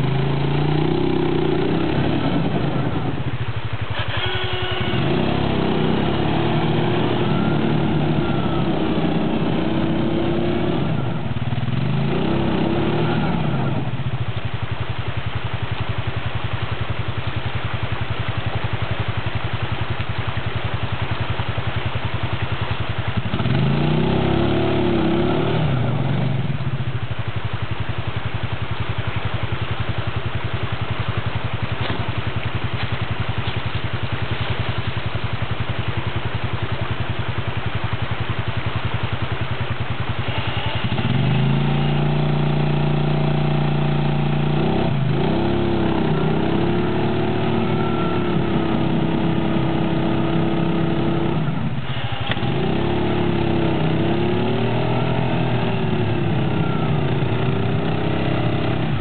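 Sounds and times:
atv engine idling and revving: 0.0 - 59.0.

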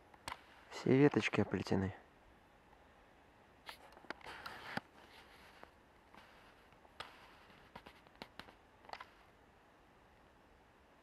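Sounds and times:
faint rustle: 3.6 - 9.4.

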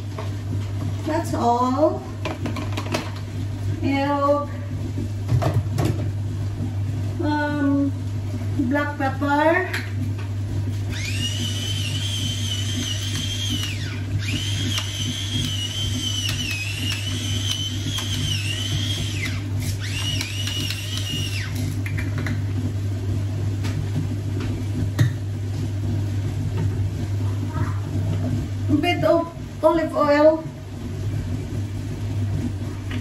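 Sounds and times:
electric pepper grinder whining: 10.9 - 22.0.

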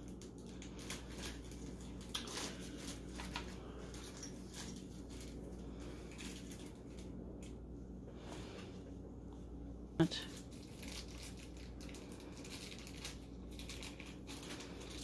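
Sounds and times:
small rustles and clicks: 10.2 - 15.0.

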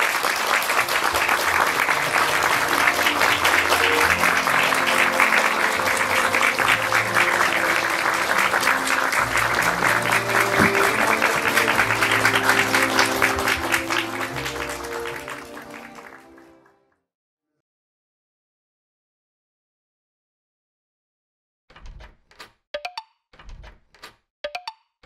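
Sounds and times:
audience applauding: 0.0 - 16.8
instrumental music: 0.6 - 16.8.

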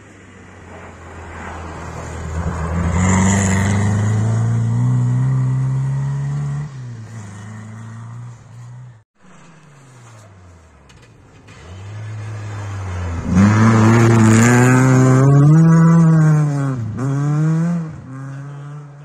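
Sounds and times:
rally car engine at high revs: 11.5 - 19.0.

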